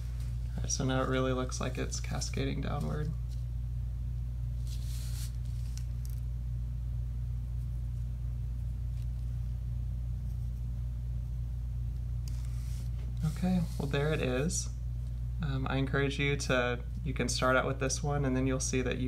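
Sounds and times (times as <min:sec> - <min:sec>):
low electrical hum: 0:00.0 - 0:19.0
paper envelope rustling: 0:04.6 - 0:06.2.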